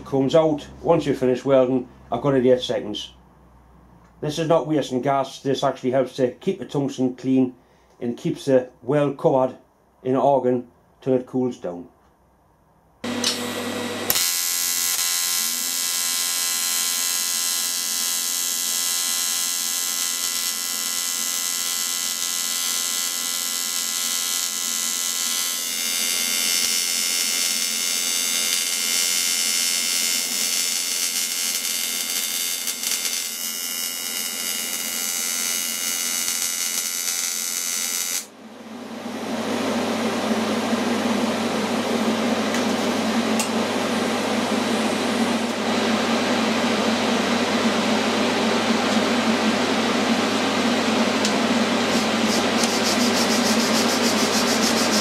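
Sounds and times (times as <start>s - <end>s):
welding arc buzzing: 13.0s - 38.4s, 50.8s - 55.0s
fan-like hiss: 48.9s - 55.0s.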